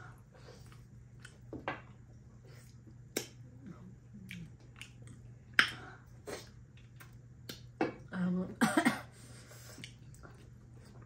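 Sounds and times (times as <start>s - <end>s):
people chewing food: 0.0s - 8.1s, 9.2s - 11.0s.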